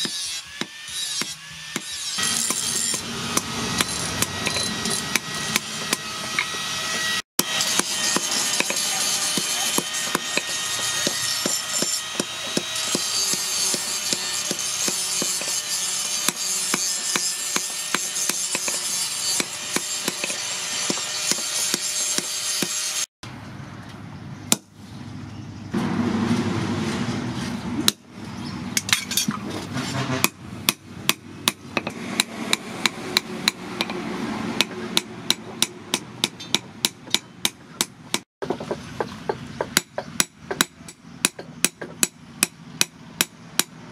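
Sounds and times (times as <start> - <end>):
hammer striking hot steel: 0.0 - 6.6, 7.4 - 22.8
anvil ringing: 2.2 - 6.1.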